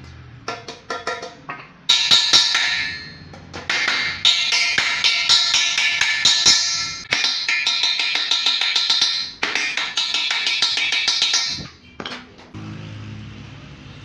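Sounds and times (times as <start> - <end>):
hammer blows on sheet metal: 1.9 - 11.8.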